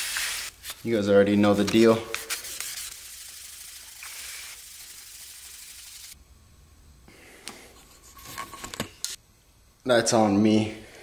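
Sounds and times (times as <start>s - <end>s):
wet-sanding sheet metal: 2.1s - 6.2s.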